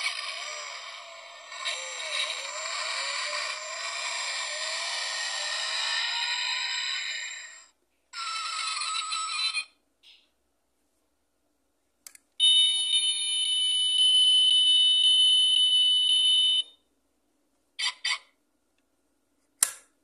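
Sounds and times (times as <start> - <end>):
toy car electronic sound effect: 0.0 - 10.2, 12.4 - 16.7, 17.8 - 18.4
click: 12.0 - 12.3
electronic alarm tone: 12.4 - 16.8.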